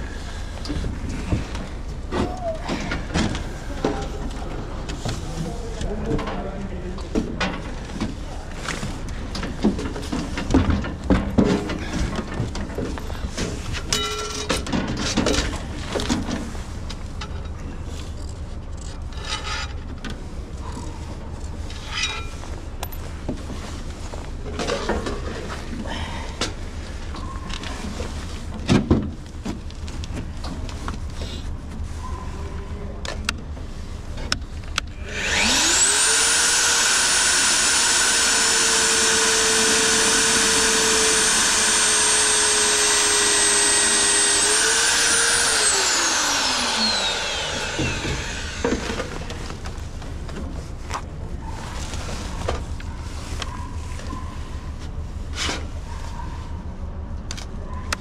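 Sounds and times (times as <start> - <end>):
power tool motor whining: 35.0 - 49.3.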